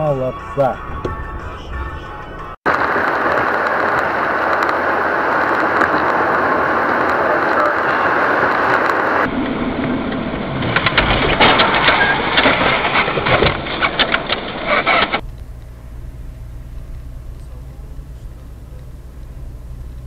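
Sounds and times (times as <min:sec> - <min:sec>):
car driving rumble: 0:00.0 - 0:20.0
crackling and crunching clicks: 0:02.7 - 0:15.7.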